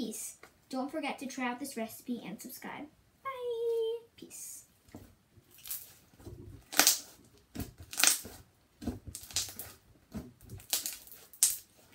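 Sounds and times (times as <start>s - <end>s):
slime squelching: 5.4s - 11.9s.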